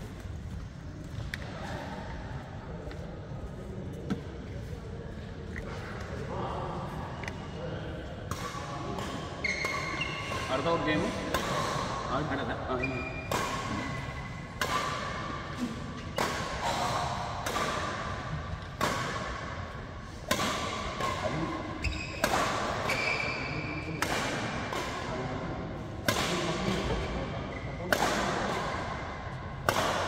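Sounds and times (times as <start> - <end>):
racket hitting shuttlecock: 8.3 - 12.1, 13.1 - 25.3, 26.0 - 27.2, 27.8 - 30.0.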